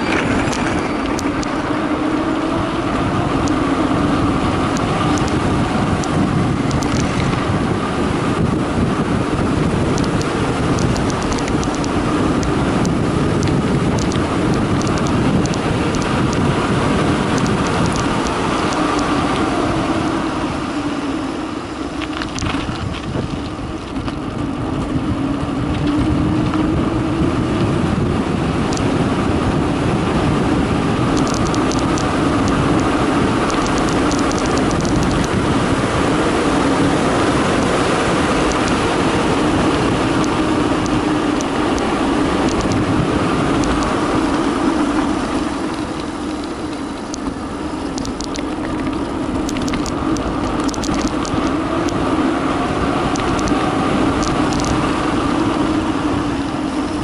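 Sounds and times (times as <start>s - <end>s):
bike tyres on concrete: 0.0s - 28.2s
wind rushing over microphone: 0.0s - 57.0s
light clicks: 6.0s - 7.4s, 10.0s - 16.4s, 17.4s - 19.1s, 31.2s - 32.6s, 33.5s - 35.4s, 47.9s - 52.0s, 53.1s - 53.6s, 54.2s - 54.8s.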